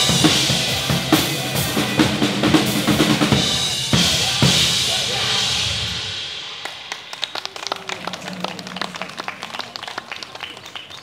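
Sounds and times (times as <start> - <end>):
audience clapping: 6.6 - 11.0.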